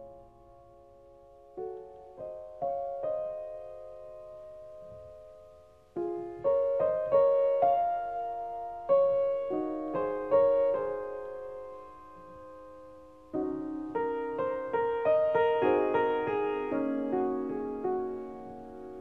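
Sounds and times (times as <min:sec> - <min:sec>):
slow piano music: 0:00.0 - 0:19.0.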